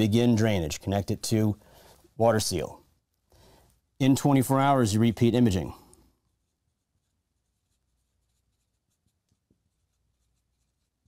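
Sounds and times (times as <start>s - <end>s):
marker scratching on whiteboard: 6.2s - 11.0s.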